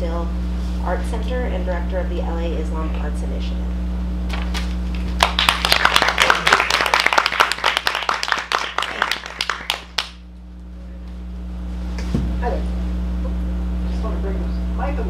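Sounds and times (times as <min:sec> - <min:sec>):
audience applauding: 0:04.9 - 0:10.2.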